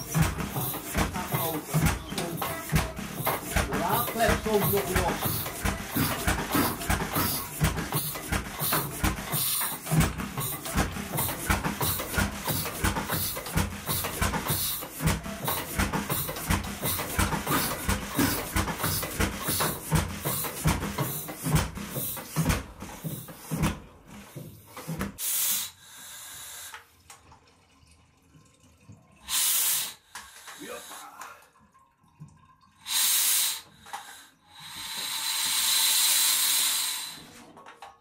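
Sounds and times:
engine thumping beat: 0.0 - 25.2.

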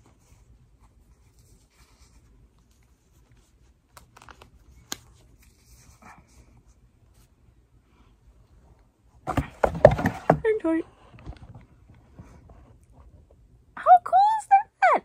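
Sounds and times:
faint yarn rustling: 0.0 - 9.2.

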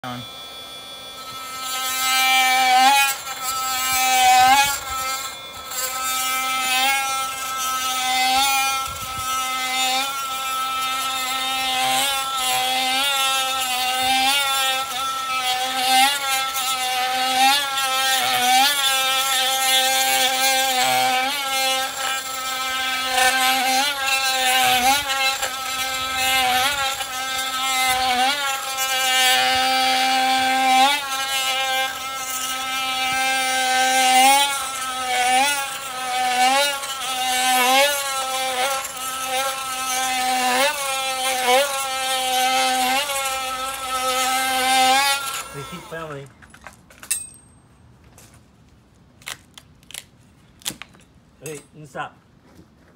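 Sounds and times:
oscillating multi-tool cutting: 0.0 - 47.5, 49.2 - 52.1.

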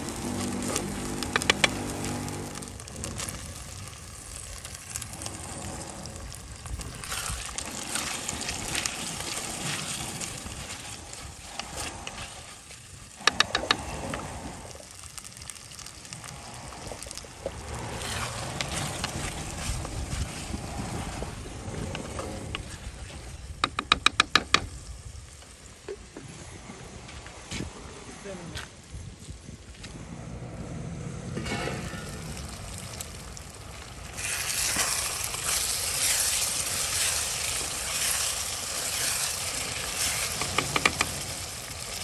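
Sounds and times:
wooden spatula scraping and stirring: 0.0 - 3.4, 4.8 - 23.5, 34.2 - 41.5
food frying in a pot: 0.0 - 21.9, 31.4 - 42.0.

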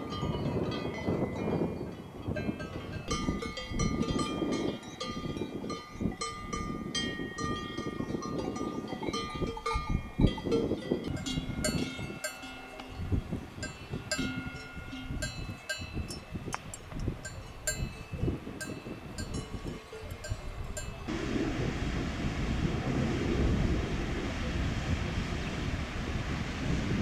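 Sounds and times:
livestock bells clanking: 0.0 - 21.1.

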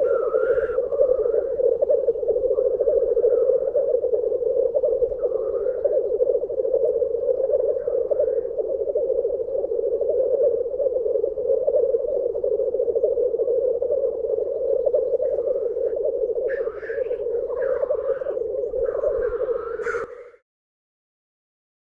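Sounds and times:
high bird calls: 0.0 - 1.5, 15.1 - 20.4
grouse bubbling chorus: 0.0 - 20.4.

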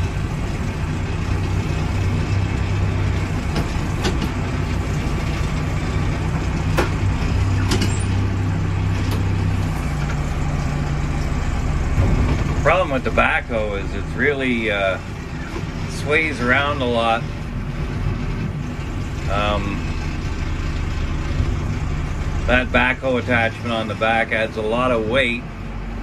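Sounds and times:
diesel engine running: 0.0 - 26.0
sharp knocks: 6.7 - 8.0.

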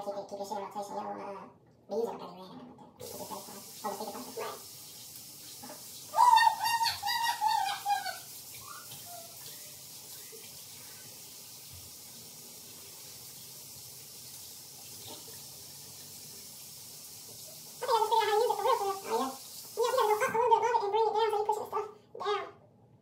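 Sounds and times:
faucet running: 3.0 - 20.6
high-pitched wavering vocal sound: 6.1 - 10.4.

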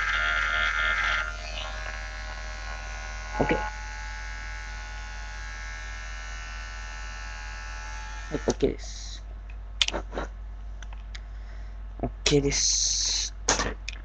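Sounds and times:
electric hair clippers buzzing: 0.0 - 8.6.

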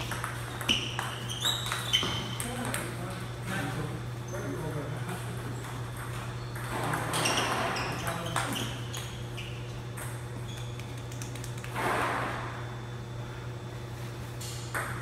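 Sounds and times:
table tennis ball rally: 0.0 - 3.1, 5.5 - 9.2
steady low hum: 0.0 - 15.0.

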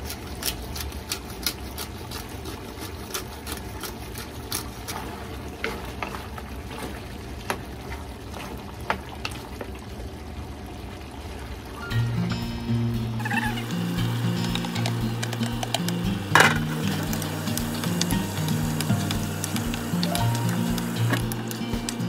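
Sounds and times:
steady sizzle: 11.8 - 22.0
spatula tapping and scraping a pan: 13.6 - 22.0.

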